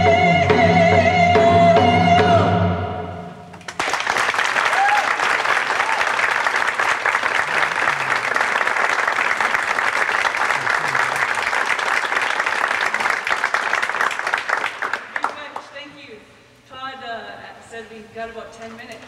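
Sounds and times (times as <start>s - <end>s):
audience applauding: 3.6s - 15.6s.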